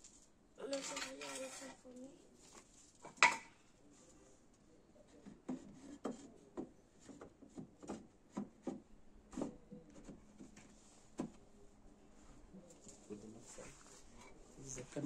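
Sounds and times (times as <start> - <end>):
wood knocking and scraping: 5.2 - 11.4.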